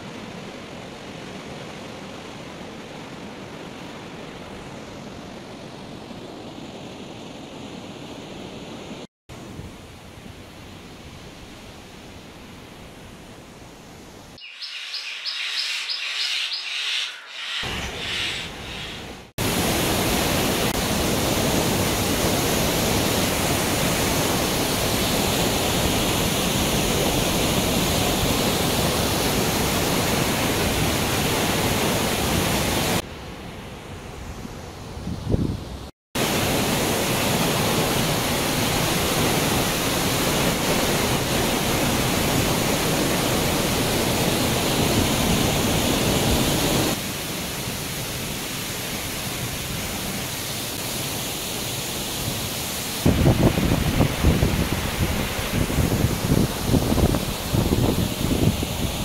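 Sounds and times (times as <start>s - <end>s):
rapid high chirps: 14.4s - 19.3s
waterfall roaring: 17.4s - 33.0s, 36.2s - 59.0s.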